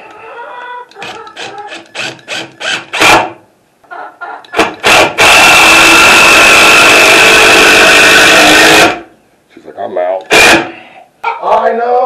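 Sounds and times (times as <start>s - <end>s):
power drill whining: 1.0s - 3.2s, 4.8s - 9.0s, 10.3s - 10.7s.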